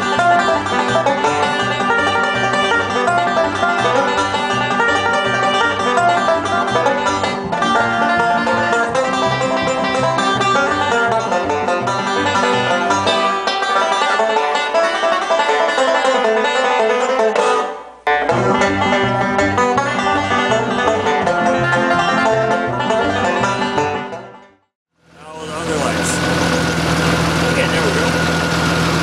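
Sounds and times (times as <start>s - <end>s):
bouncing bass line: 0.0s - 13.2s, 18.1s - 24.0s
picked banjo: 0.0s - 24.6s, 25.2s - 29.0s.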